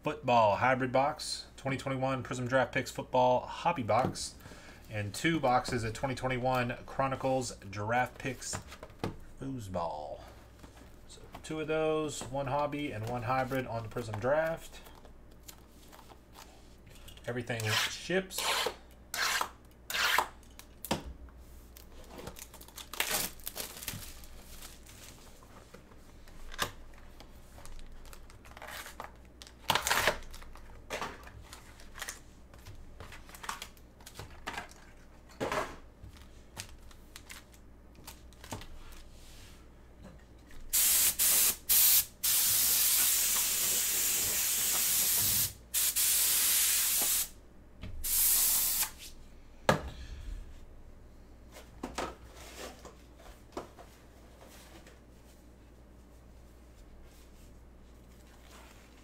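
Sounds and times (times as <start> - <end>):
plastic wrap and cardboard rustling: 21.6 - 35.3
wrapping being torn off: 22.3 - 24.9.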